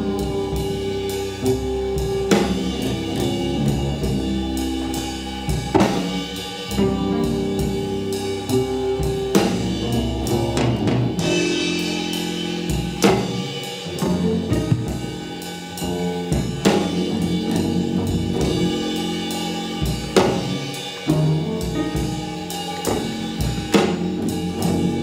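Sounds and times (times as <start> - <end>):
drum kit: 0.0 - 25.0
sustained pitched notes: 0.0 - 25.0.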